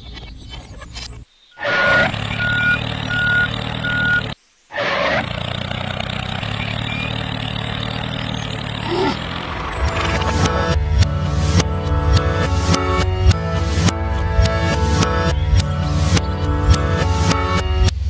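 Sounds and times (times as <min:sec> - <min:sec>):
tractor engine running: 0:01.6 - 0:18.0
short beeps: 0:01.8 - 0:04.4.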